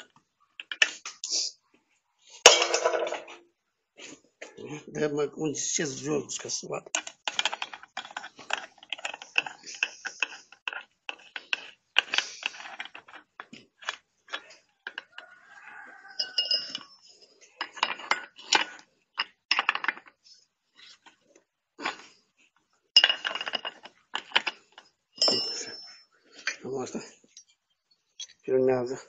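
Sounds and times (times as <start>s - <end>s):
metal clinks and scrapes: 7.0s - 21.2s, 23.0s - 28.5s.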